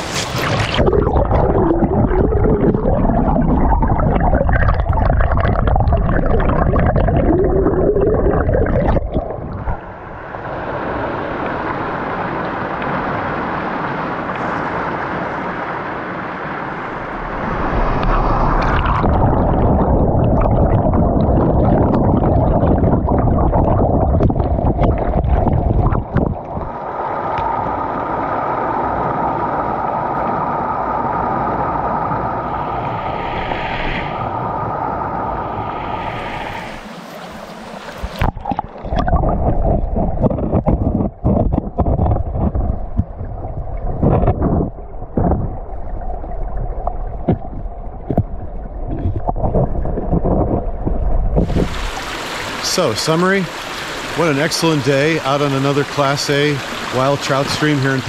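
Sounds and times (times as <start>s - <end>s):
stream water rushing and gurgling: 0.0s - 58.0s
steady tone: 16.6s - 23.8s.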